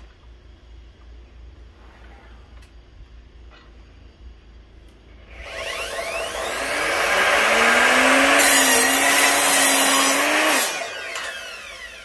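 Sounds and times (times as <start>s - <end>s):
mitre saw motor whine: 5.1s - 12.0s
saw cutting wood: 5.3s - 12.0s.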